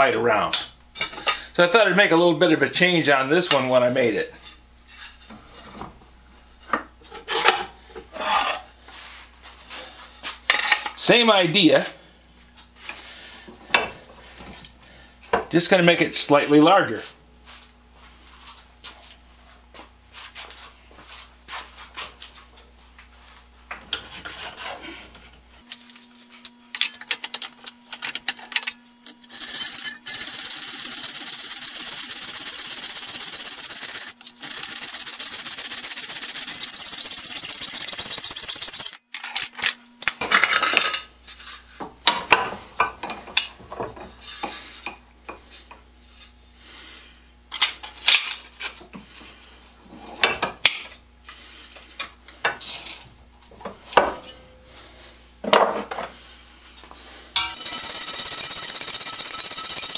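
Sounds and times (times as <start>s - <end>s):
file scraping metal: 28.7s - 39.0s, 57.6s - 59.9s.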